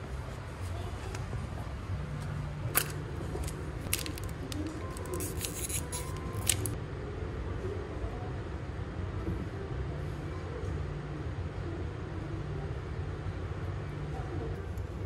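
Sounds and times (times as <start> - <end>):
plastic packet crinkling: 2.7 - 6.8.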